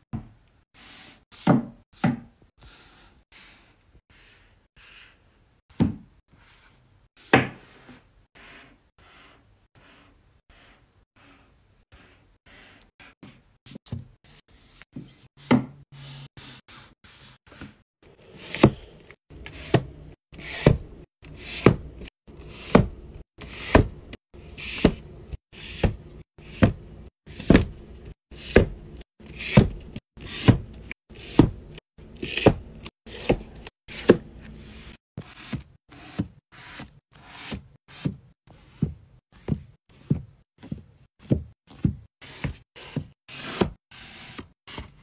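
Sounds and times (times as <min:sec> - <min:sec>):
book cover scuffing: 0:34.8 - 0:45.0.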